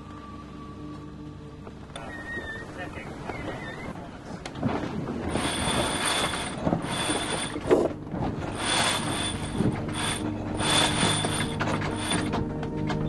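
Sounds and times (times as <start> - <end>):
winch clicking: 5.2 - 13.0.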